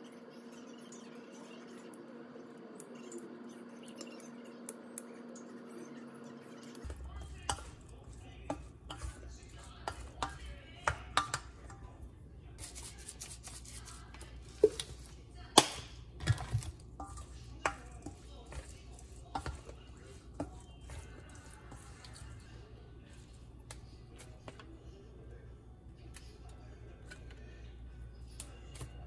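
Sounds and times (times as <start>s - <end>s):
wooden spoon scraping metal bowl: 6.8s - 12.0s, 12.6s - 15.2s, 16.2s - 24.7s.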